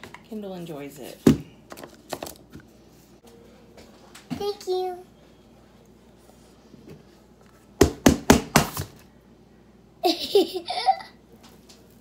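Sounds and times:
little girl laughing: 10.0s - 11.3s.

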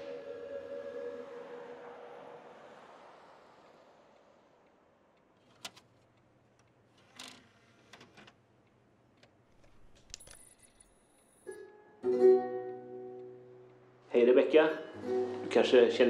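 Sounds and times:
strummed guitar chord: 14.7s - 16.0s.

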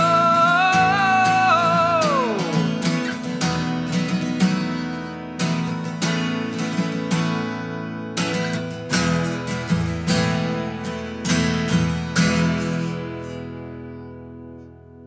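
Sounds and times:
man singing a held note: 0.0s - 2.8s
acoustic guitar strumming: 0.0s - 15.0s.

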